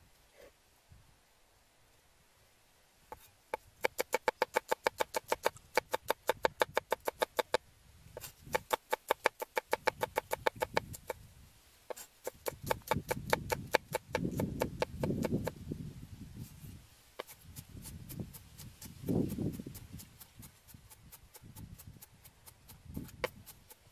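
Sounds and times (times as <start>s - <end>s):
cleaver knocking on wooden block: 3.1s - 7.6s, 8.5s - 11.2s, 11.9s - 15.6s.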